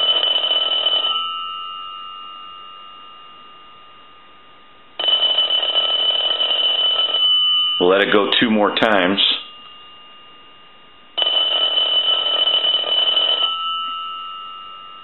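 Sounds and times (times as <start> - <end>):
telephone bell ringing: 0.0 - 2.7, 5.0 - 8.1, 11.2 - 15.0.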